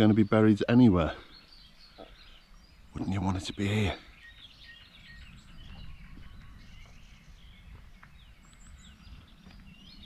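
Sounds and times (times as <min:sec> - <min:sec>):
small birds chirping: 0:00.0 - 0:10.0
wind rumble on microphone: 0:04.1 - 0:10.0.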